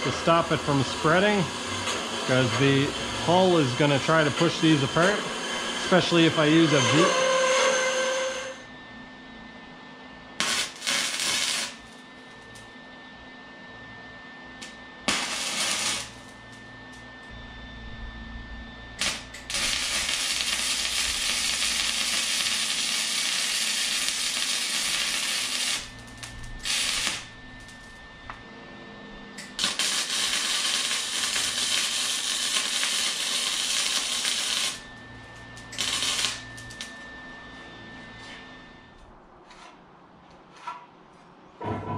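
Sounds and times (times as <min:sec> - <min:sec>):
arc welding crackling and sizzling: 0:00.0 - 0:05.2, 0:10.4 - 0:12.6, 0:14.6 - 0:17.0, 0:19.0 - 0:28.0, 0:29.4 - 0:37.0.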